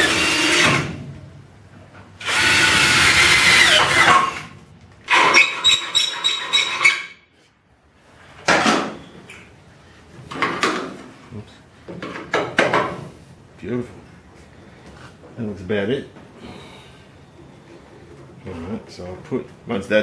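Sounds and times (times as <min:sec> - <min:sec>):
power drill drilling into car body: 0:00.0 - 0:00.9, 0:02.2 - 0:04.5.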